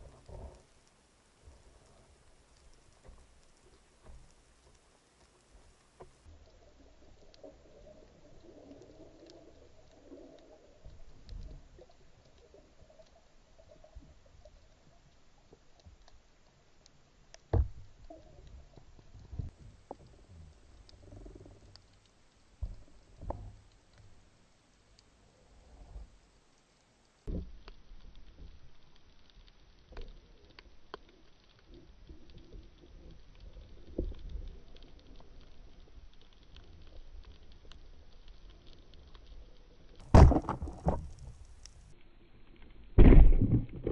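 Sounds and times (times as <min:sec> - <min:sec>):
faint sharp clicks: 0:00.0 - 0:40.0
muffled underwater water noise: 0:00.0 - 0:43.9
dull thump: 0:17.5 - 0:17.8, 0:40.0 - 0:41.1
low underwater rumble: 0:17.6 - 0:24.4, 0:31.6 - 0:43.9
low thuds: 0:40.0 - 0:41.4.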